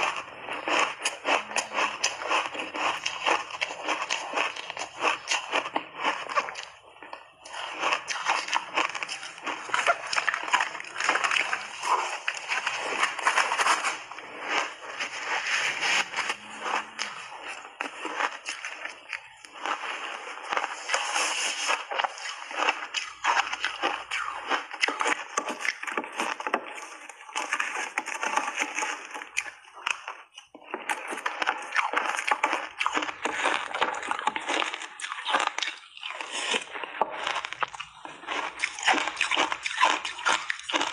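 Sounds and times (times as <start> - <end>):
chewing and crunching ice: 0.0 - 40.9.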